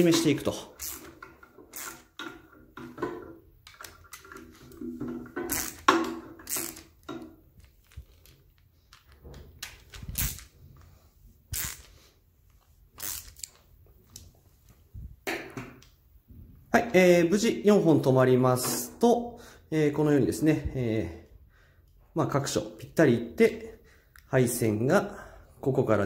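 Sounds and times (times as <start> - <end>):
screws creaking: 0.0 - 3.0, 3.6 - 10.6, 11.5 - 12.0, 13.0 - 13.6
tool clicks and knocks: 0.1 - 10.4.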